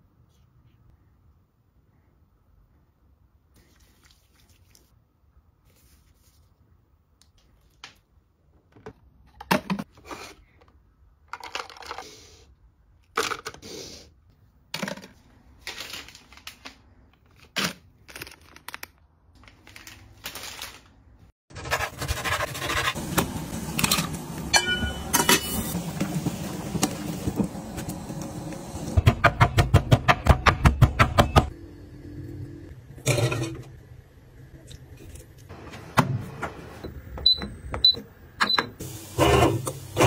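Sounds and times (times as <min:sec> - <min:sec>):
plastic packets crinkling: 0:15.5 - 0:21.2.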